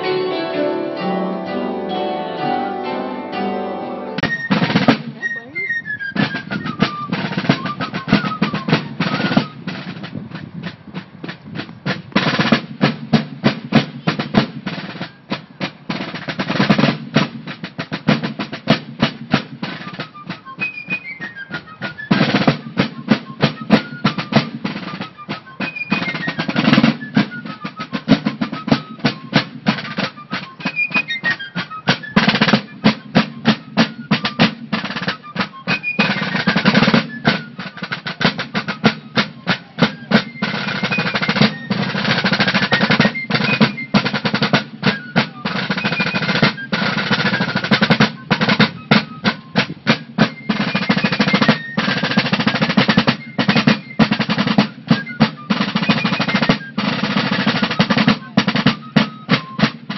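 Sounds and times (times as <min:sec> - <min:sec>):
high fife melody: 0:00.0 - 0:09.9
snare drums rolling: 0:04.2 - 0:59.9.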